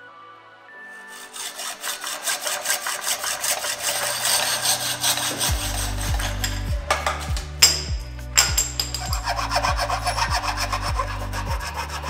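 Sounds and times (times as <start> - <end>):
background music: 0.0 - 12.0
hacksaw cutting metal tube: 1.0 - 12.0.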